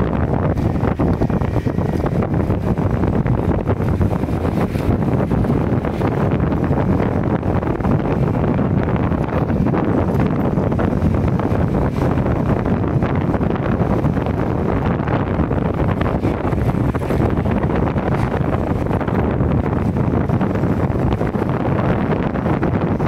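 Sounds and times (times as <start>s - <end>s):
road noise: 0.0s - 23.0s
vehicle engine: 0.0s - 23.0s
wind buffeting microphone: 0.0s - 23.0s.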